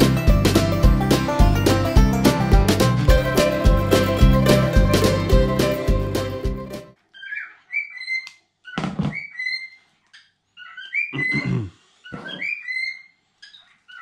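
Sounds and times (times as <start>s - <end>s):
background music: 0.0s - 7.0s
cockatiels chirping: 7.1s - 14.0s.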